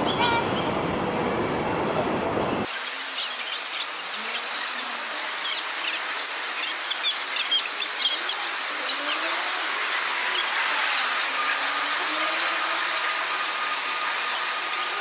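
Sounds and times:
steady park hum: 0.0s - 15.0s
small birds chirping: 2.7s - 12.2s.

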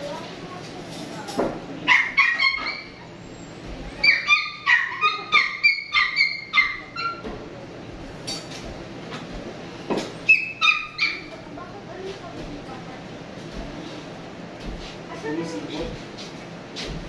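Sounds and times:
small dog yapping: 1.9s - 3.0s, 4.0s - 7.3s, 10.3s - 11.4s.

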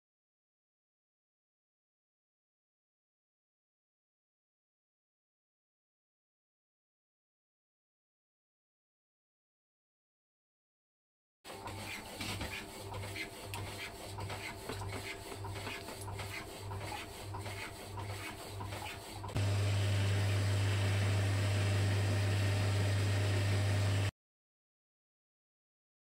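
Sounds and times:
metal lathe humming: 11.5s - 24.1s
power saw strokes: 11.5s - 24.1s.

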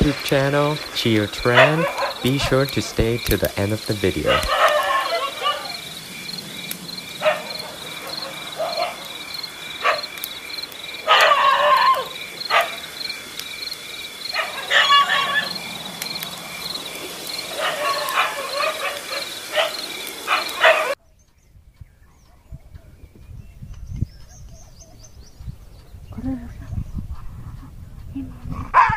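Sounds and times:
crickets chirping: 0.0s - 21.5s.

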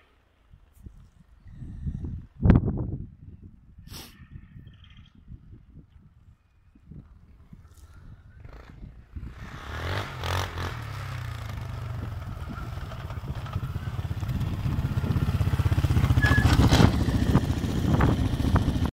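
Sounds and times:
quad engine revving: 8.4s - 18.9s.

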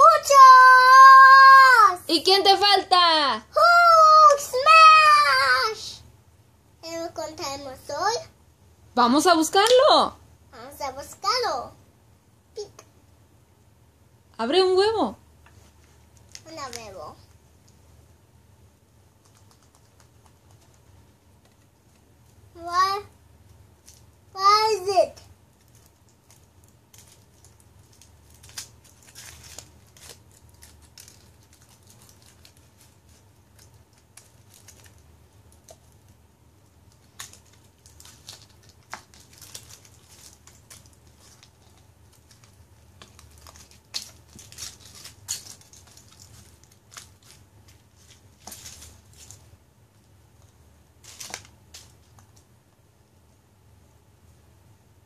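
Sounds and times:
foil wrapper crinkling and tearing: 25.6s - 36.2s, 36.9s - 49.5s, 51.0s - 52.4s.

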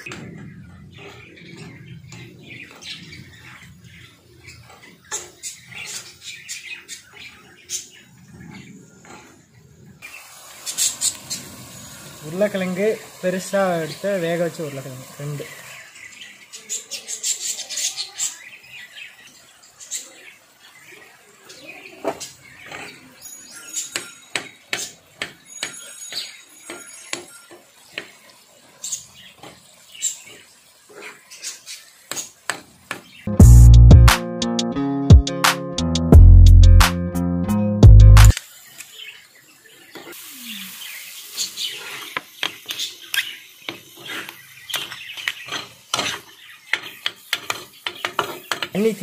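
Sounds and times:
ladle scraping iron griddle: 7.1s - 9.6s, 43.8s - 49.0s.

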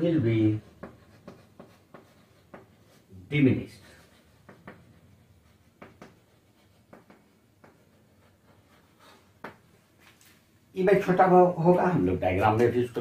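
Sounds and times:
chalk tapping and scratching on blackboard: 0.0s - 10.2s.

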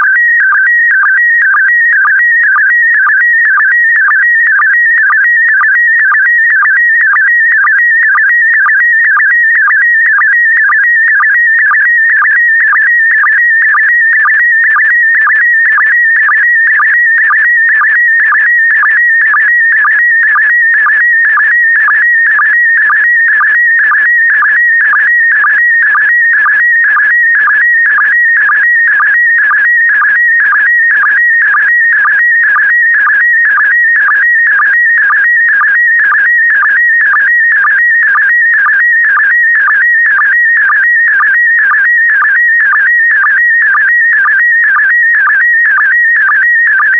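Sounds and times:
warbling high tone signal: 0.0s - 20.0s.

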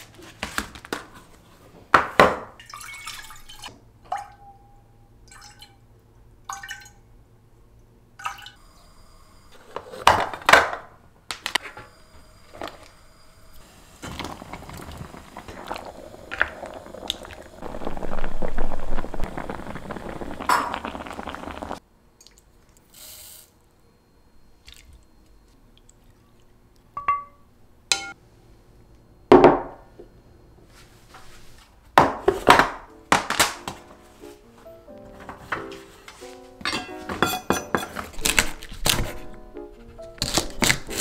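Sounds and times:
eggs tumbling into pot clatter: 14.0s - 21.8s
utensils clinking on glass: 36.6s - 38.2s.

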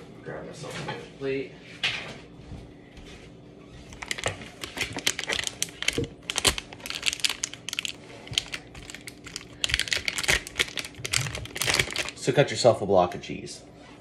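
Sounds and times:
plastic packaging crinkling: 3.9s - 12.4s.

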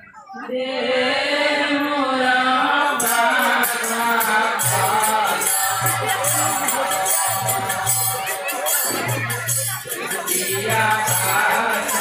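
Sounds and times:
devotional chant-like singing: 0.0s - 12.0s
jingling cymbal rhythm: 3.0s - 12.0s.

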